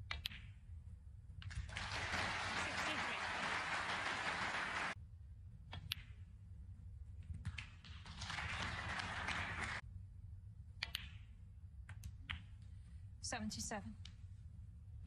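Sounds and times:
audience applause: 1.7 - 5.0, 8.1 - 9.8
snooker balls clicking: 10.8 - 11.3.

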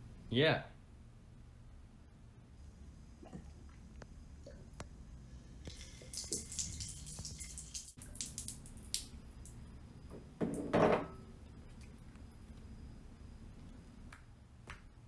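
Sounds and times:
water dripping and splashing: 5.6 - 9.6.

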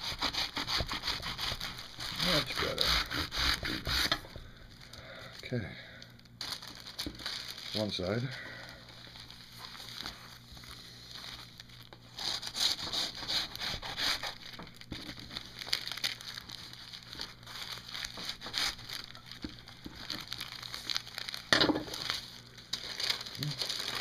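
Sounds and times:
knife sawing through cardboard: 0.0 - 4.2, 12.2 - 14.4
paper crinkling: 1.3 - 2.8, 6.1 - 24.0.

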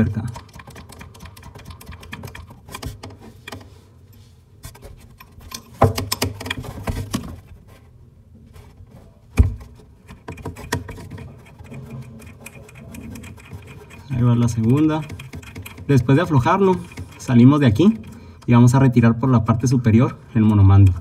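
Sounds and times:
metal nut turning on threads: 0.0 - 6.7, 10.1 - 18.6.

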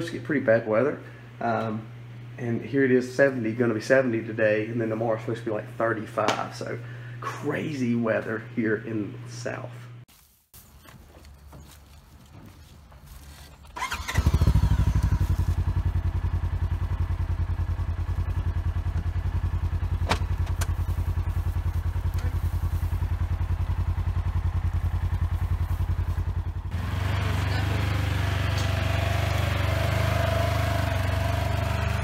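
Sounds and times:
vehicle engine idling: 13.1 - 32.0.

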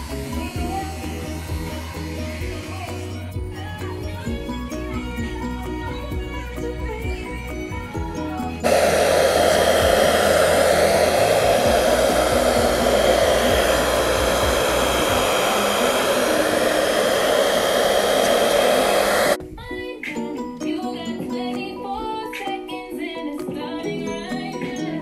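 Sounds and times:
hair dryer blowing: 0.0 - 4.8, 8.6 - 19.4.

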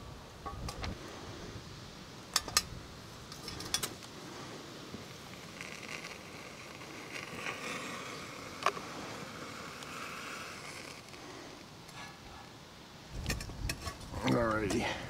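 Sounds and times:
wind hiss: 0.0 - 15.0.

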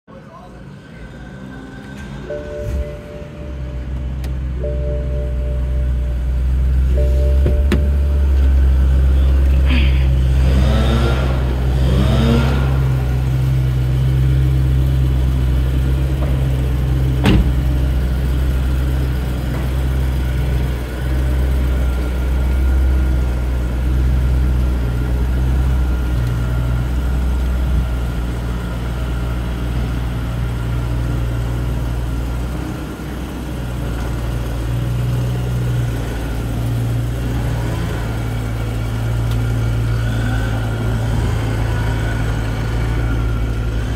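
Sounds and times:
car engine idling: 1.5 - 43.9
car door shutting: 7.0 - 8.7, 16.1 - 17.9.

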